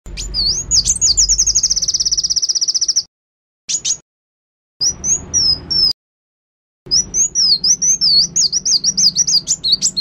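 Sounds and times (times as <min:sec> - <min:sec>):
bird song recording: 0:00.1 - 0:03.1, 0:03.7 - 0:04.0, 0:04.8 - 0:06.0, 0:06.9 - 0:10.0.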